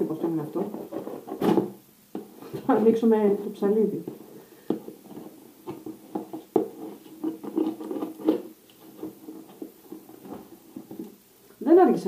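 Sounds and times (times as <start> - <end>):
cardboard box taps and rustles: 0.6 - 2.8, 4.1 - 11.2.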